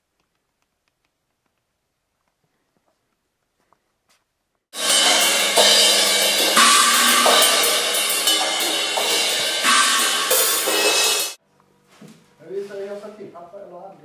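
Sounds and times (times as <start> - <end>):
cymbals and hi-hat: 4.8 - 11.4
drum kit played hard: 4.8 - 11.4.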